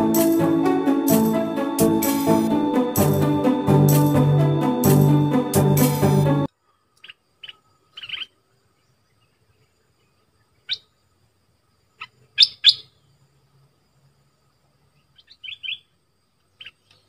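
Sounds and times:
bulbul chirpy calls: 0:07.0 - 0:08.4, 0:10.5 - 0:11.0, 0:11.9 - 0:13.1, 0:15.0 - 0:17.0.

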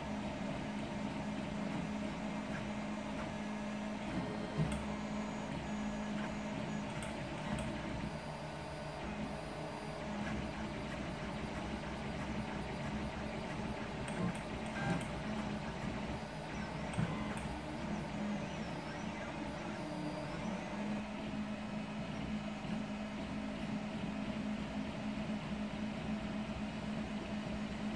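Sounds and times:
cooling fan humming: 0:00.0 - 0:21.3
stepper motors whining: 0:04.0 - 0:21.0.

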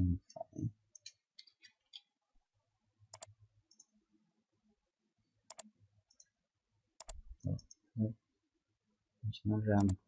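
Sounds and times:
mouse double-clicks: 0:03.1 - 0:03.9, 0:05.5 - 0:06.3, 0:07.0 - 0:07.8.

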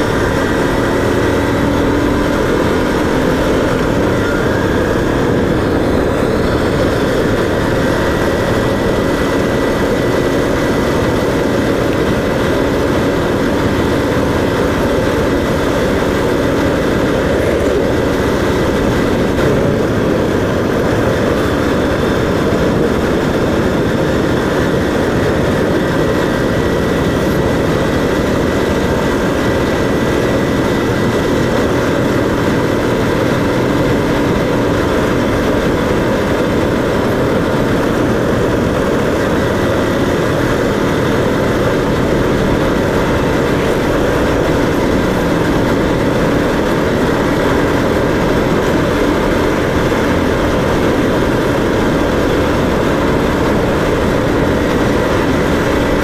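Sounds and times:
road noise: 0:00.0 - 0:56.0
vehicle engine running: 0:00.0 - 0:56.0.

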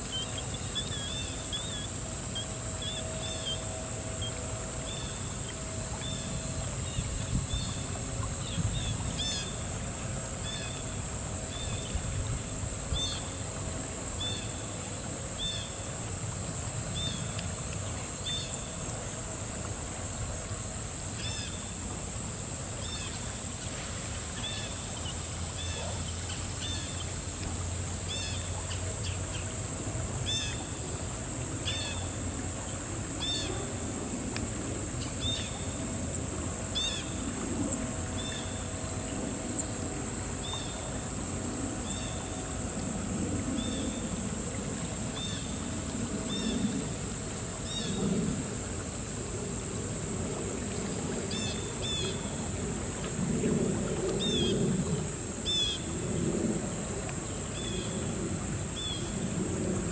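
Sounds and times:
high insect drone: 0:00.0 - 0:59.9
river water: 0:00.0 - 0:59.9
killdeer calling: 0:06.0 - 0:09.6.

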